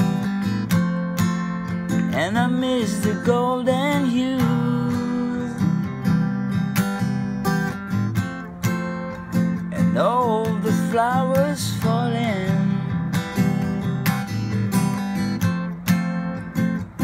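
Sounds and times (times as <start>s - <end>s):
acoustic guitar strumming: 0.0s - 17.0s
person singing: 2.0s - 5.9s, 9.7s - 14.0s.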